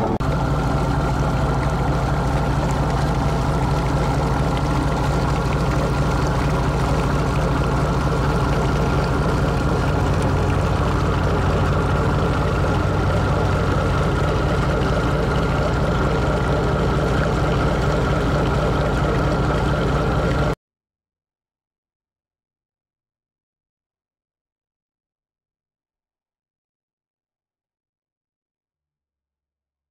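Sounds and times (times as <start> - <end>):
boat diesel engine droning: 0.0 - 20.6
water washing along hull: 0.0 - 20.6.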